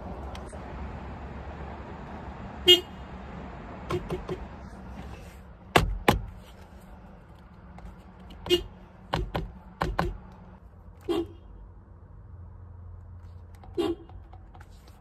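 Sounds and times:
car horn beeps: 0:02.6 - 0:03.0, 0:08.4 - 0:08.8, 0:11.0 - 0:11.6, 0:13.6 - 0:14.3.

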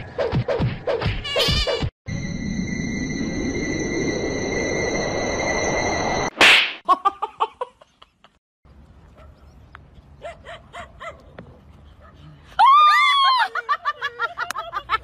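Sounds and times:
loud swish or smack: 0:06.3 - 0:06.8.

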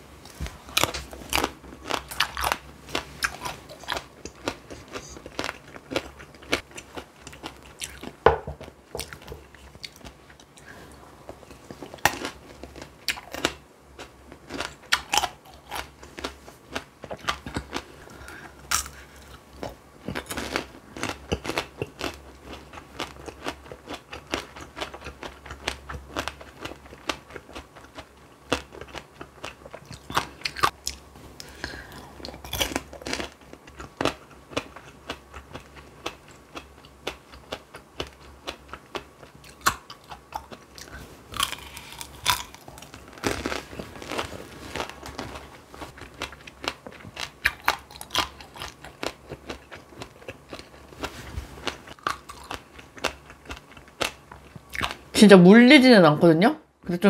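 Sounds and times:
candy shell crunching while chewing: 0:11.5 - 0:51.0, 0:51.6 - 0:55.0.

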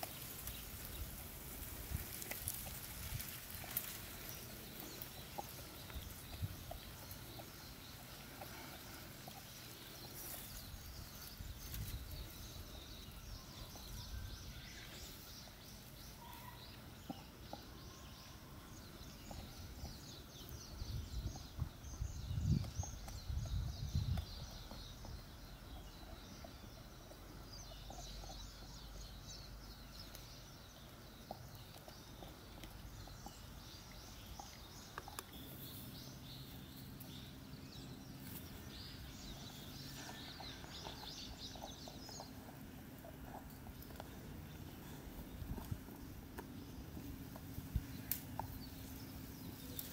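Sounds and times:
birds chirping: 0:00.0 - 0:49.9
puppy chewing bone: 0:31.0 - 0:35.6, 0:36.8 - 0:49.9.

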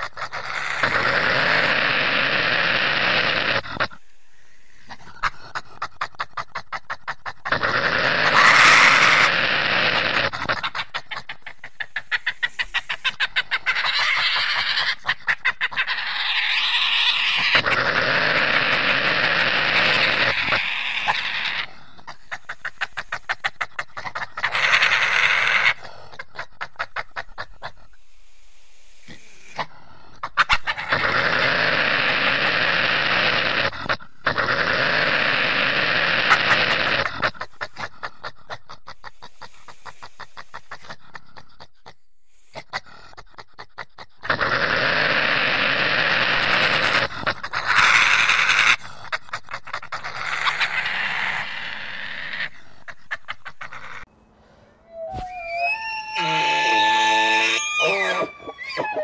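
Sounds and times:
badger harsh noisy calls: 0:00.0 - 0:05.4, 0:06.3 - 0:25.9, 0:30.2 - 0:37.8, 0:44.2 - 0:48.8, 0:49.6 - 0:59.0.

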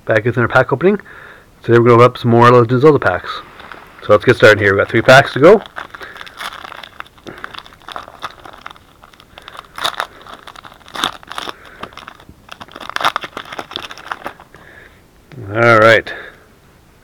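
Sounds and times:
foil wrapper crinkling and tearing: 0:03.0 - 0:14.7.

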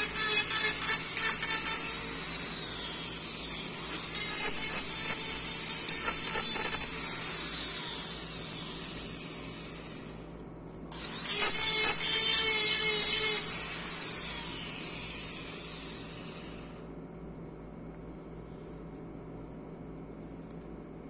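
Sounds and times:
dental handpiece grinding acrylic: 0:00.0 - 0:10.1, 0:11.0 - 0:16.6
handpiece high whine: 0:00.0 - 0:16.9.

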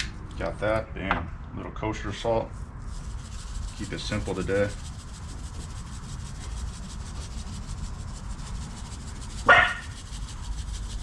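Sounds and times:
salt shaker rasping: 0:02.5 - 0:11.0
dog barking: 0:09.5 - 0:09.9.

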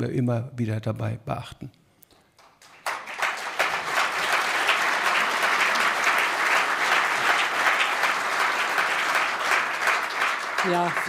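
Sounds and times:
audience applauding: 0:02.4 - 0:11.0.

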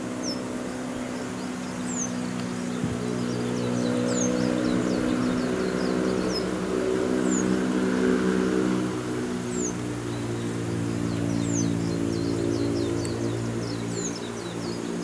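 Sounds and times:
vehicle engine humming: 0:00.0 - 0:15.0
small bird chirping: 0:09.5 - 0:15.0.

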